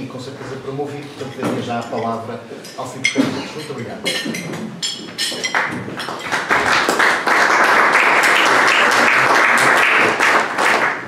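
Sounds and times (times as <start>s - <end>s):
audience applauding: 5.5s - 11.0s.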